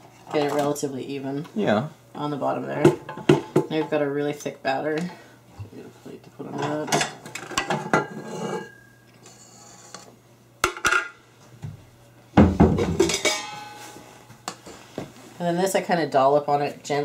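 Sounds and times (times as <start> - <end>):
steel mixer bowl clinking: 13.0 - 13.7
metal ringing: 13.0 - 13.9.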